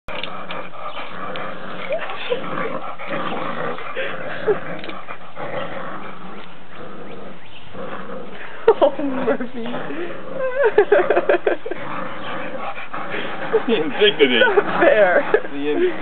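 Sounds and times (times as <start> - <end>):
puppies growling: 0.1 - 16.0.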